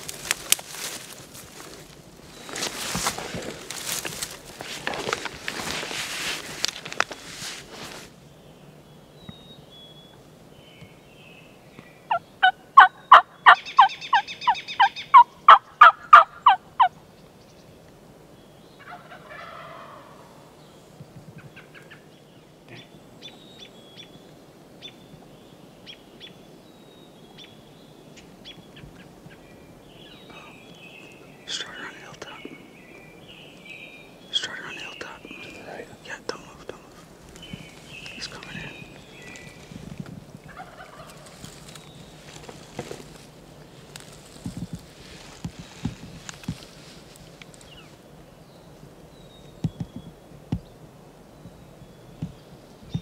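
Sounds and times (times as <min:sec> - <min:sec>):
turkey gobbling: 0:12.1 - 0:16.9, 0:18.8 - 0:20.2, 0:40.4 - 0:41.5
faint ticks: 0:43.9 - 0:47.7.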